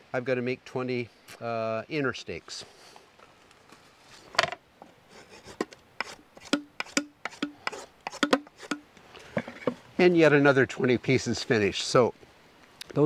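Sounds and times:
drawknife shaving wood: 5.1 - 8.8.

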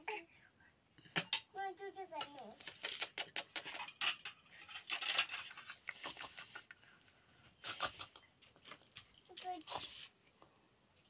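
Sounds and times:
steel bowls clinking and scraping: 3.6 - 6.7.

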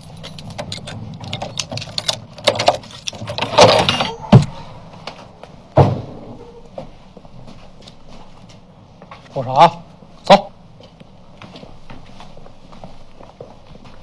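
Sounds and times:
gate bolt rattling and clicking: 0.2 - 4.6.

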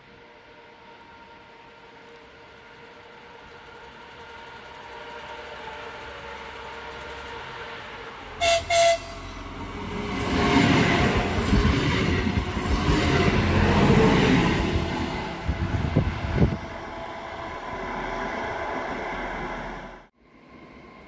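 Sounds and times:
train engine and wheels passing: 0.0 - 21.0
train horn blasts: 5.5 - 9.5.

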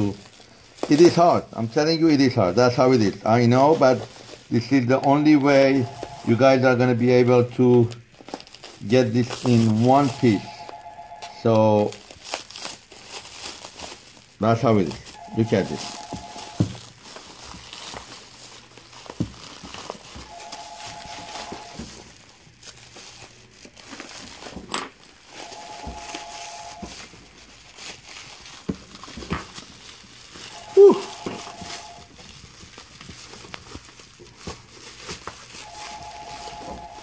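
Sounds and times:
plastic wrap crinkling: 0.0 - 37.0
faint steady beep: 15.2 - 16.7, 20.3 - 21.8.

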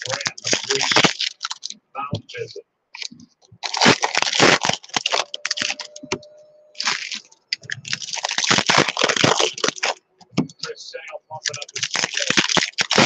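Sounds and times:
foil wrapper crinkling and tearing: 0.0 - 1.8, 3.0 - 6.0, 6.8 - 10.0, 11.4 - 13.0.

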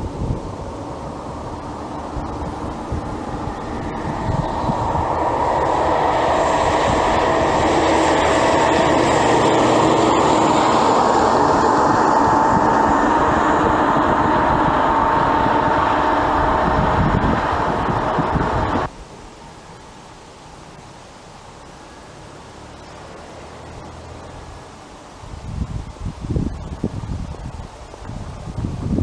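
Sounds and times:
steady humming tones: 0.0 - 18.9.

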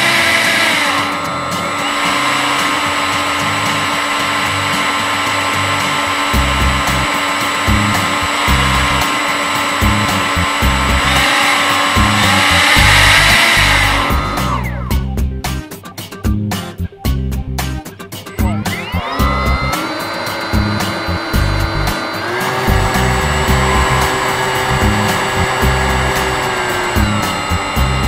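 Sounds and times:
model hovercraft fans whining: 0.0 - 15.0, 18.2 - 28.0
low rumbles: 12.0 - 15.6, 20.6 - 21.9, 22.7 - 28.0.

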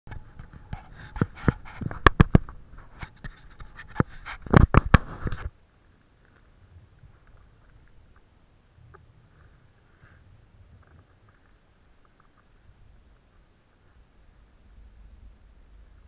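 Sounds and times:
rustle: 0.1 - 16.0
camera handling knocks and crackles: 1.2 - 5.5.

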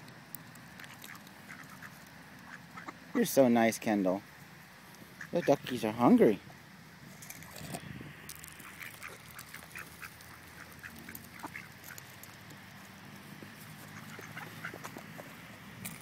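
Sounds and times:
small ticks: 0.0 - 3.0, 6.5 - 16.0
ducks quacking faintly: 0.8 - 3.7, 5.0 - 7.1, 7.7 - 15.7.

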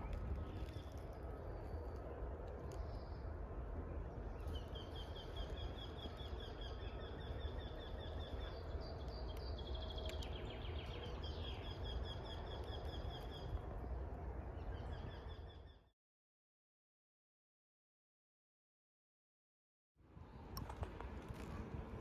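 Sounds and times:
songbirds singing: 0.0 - 15.9.

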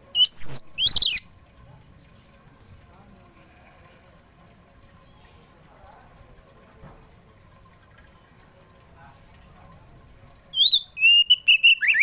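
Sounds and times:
bird whistled song: 0.2 - 1.3, 10.5 - 12.0.

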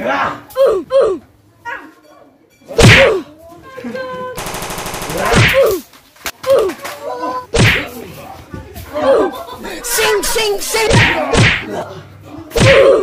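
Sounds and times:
people yelling and shouting: 2.8 - 3.3, 5.0 - 5.8, 9.0 - 13.0.

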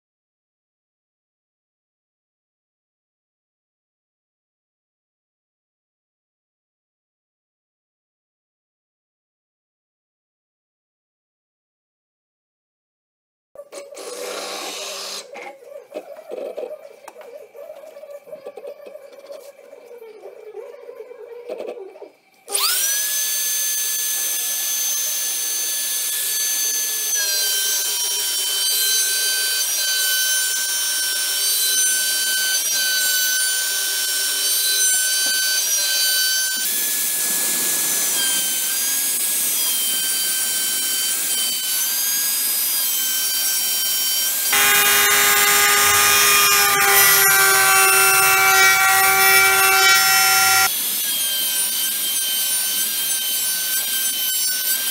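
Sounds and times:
router spindle whining: 22.5 - 51.6.

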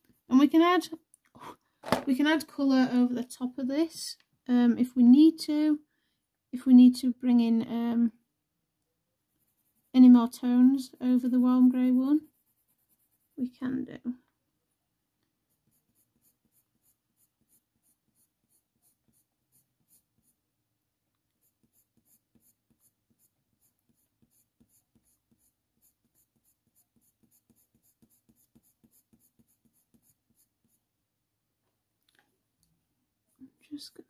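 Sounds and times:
pencil scratching on paper: 9.3 - 13.5, 15.5 - 20.4, 21.3 - 30.9.

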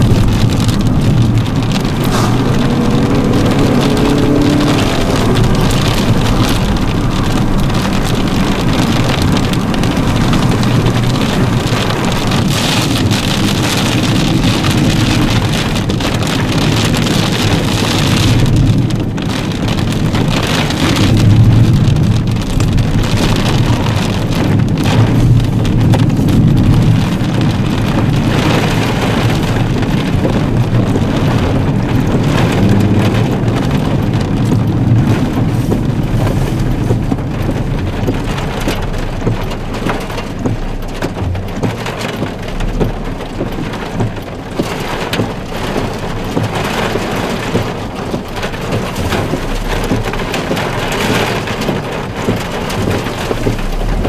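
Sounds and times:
wind gusting: 0.0 - 12.6
rain falling: 0.0 - 54.0.

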